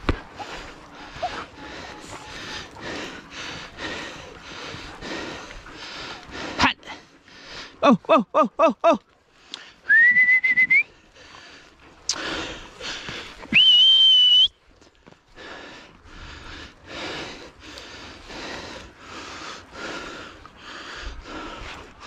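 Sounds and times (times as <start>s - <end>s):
heavy rhythmic breathing: 0.0s - 8.3s, 9.0s - 9.9s, 10.8s - 13.6s, 14.7s - 22.0s
person whistling sharply: 9.9s - 10.9s, 13.5s - 14.5s.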